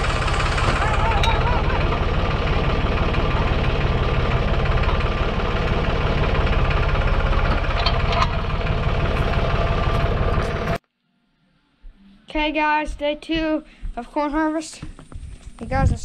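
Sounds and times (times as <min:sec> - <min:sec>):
tractor engine idling: 0:00.0 - 0:10.8.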